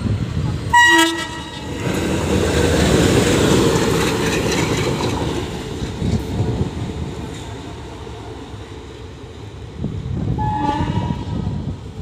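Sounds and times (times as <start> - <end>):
diesel locomotive engine and wheels: 0.0 - 12.0
locomotive horn blast: 0.7 - 1.8, 10.4 - 11.4
wheels clicking over rails: 1.8 - 6.6.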